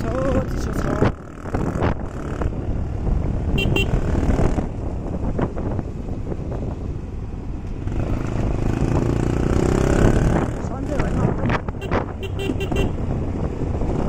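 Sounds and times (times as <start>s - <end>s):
motorcycle engine running: 0.0s - 14.0s
road rumble: 0.0s - 14.0s
horn short beeps: 3.6s - 4.0s, 11.8s - 13.0s.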